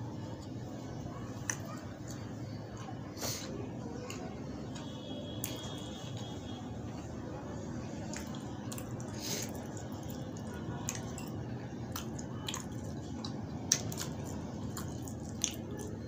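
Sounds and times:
wet squishing of food by hand: 0.4 - 16.0.

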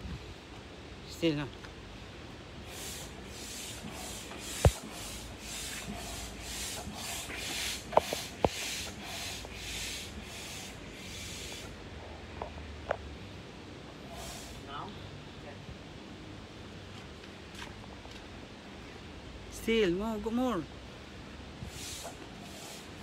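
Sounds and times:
hand air pump hissing: 2.6 - 11.8, 14.0 - 14.6, 21.7 - 23.0.

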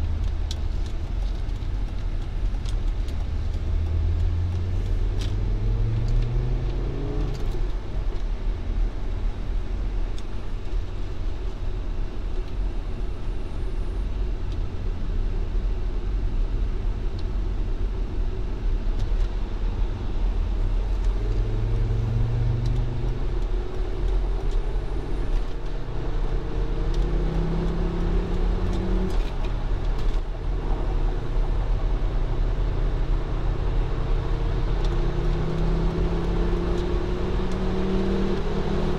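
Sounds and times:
road and wind noise: 0.0 - 38.9
car engine accelerating: 2.9 - 7.8, 20.6 - 38.9.

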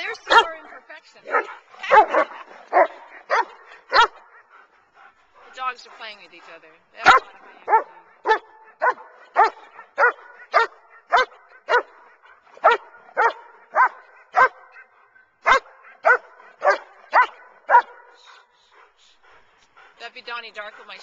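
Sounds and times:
dog barking: 0.2 - 0.6, 1.3 - 4.5, 7.0 - 18.5.

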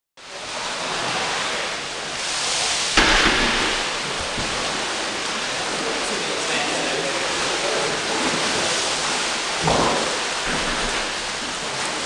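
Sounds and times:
water churned by paddles: 0.2 - 12.0
loud water splash: 0.5 - 12.0.

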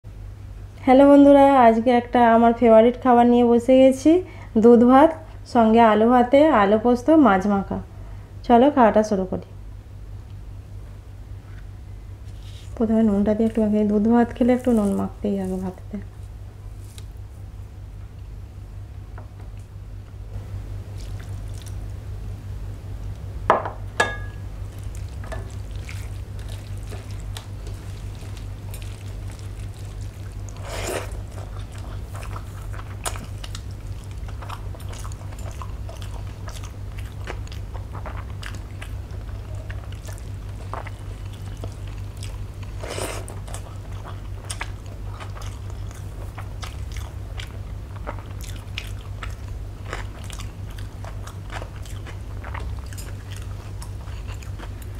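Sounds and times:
steady low hum: 0.0 - 54.9
wet mixing and chewing: 11.6 - 17.4, 20.7 - 22.0, 24.4 - 54.9.

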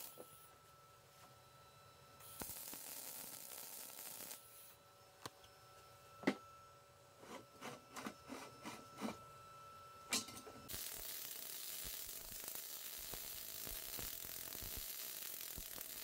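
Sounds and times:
welding arc hissing and crackling: 0.0 - 0.2, 2.2 - 4.7, 10.7 - 16.0.

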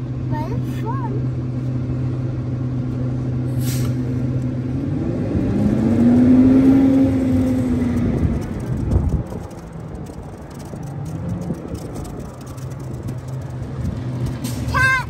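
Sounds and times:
garbage truck engine revving: 1.8 - 10.1
air hiss: 3.5 - 4.1.

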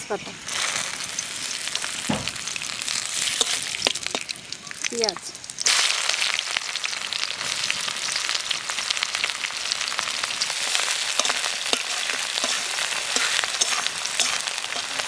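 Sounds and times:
onions sizzling in hot oil: 0.0 - 15.0
metal spatula scraping pan: 3.2 - 3.8, 11.1 - 15.0.

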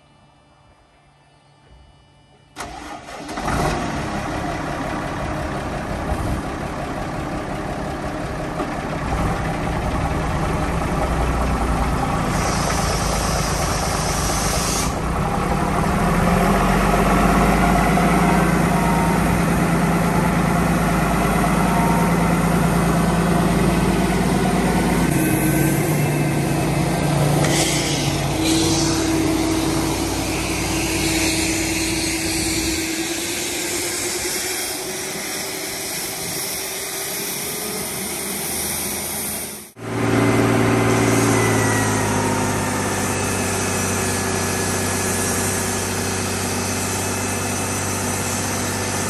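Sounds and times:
tractor diesel engine: 2.6 - 49.0
high hiss: 12.2 - 15.0, 27.4 - 39.8.

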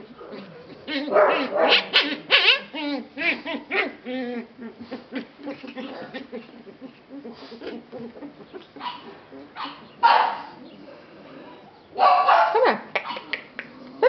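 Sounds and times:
puppies whimpering and yipping: 0.7 - 11.0.

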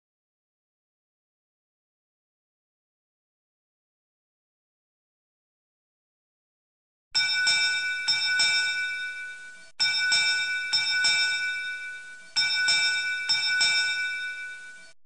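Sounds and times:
metallic alarm bell ringing: 7.2 - 15.0.

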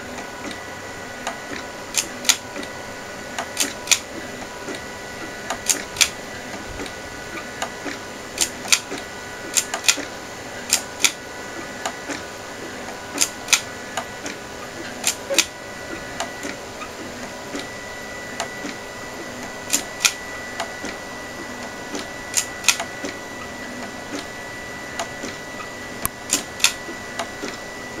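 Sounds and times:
stepper motor whine: 0.0 - 28.0
sharp printer clicks: 1.2 - 2.7, 3.4 - 6.2, 6.8 - 12.2, 12.8 - 17.7, 18.4 - 21.0, 21.6 - 23.2, 26.0 - 27.6.

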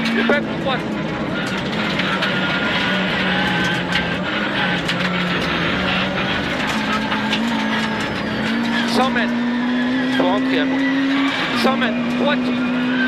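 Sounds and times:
rally car engine at high revs: 0.0 - 13.0.

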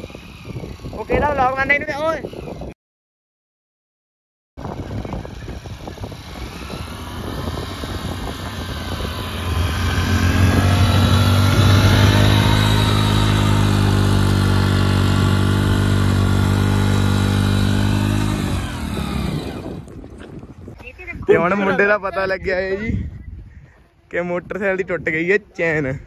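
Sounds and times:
motorcycle engine revving: 0.0 - 2.8, 4.6 - 19.9.

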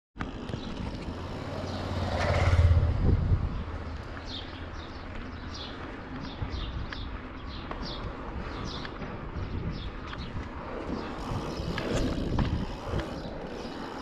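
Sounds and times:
motorcycle passing by: 0.2 - 5.7
steady low rumble: 0.5 - 5.4.

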